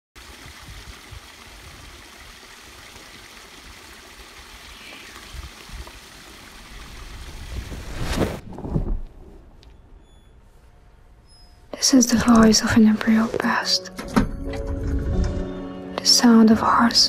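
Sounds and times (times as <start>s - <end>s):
wind buffeting microphone: 5.1s - 9.6s.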